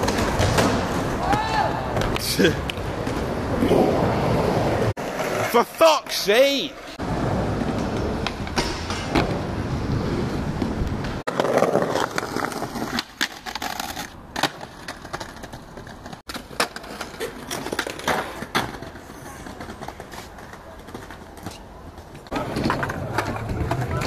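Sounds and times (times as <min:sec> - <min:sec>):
skateboard wheels rolling on concrete: 0:00.0 - 0:24.0
skateboard clacks: 0:07.6 - 0:09.4, 0:10.5 - 0:24.0.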